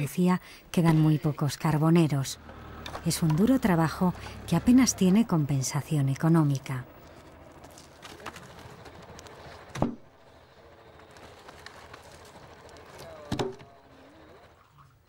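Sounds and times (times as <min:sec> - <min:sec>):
logs thudding onto a pile: 0:09.6 - 0:10.1.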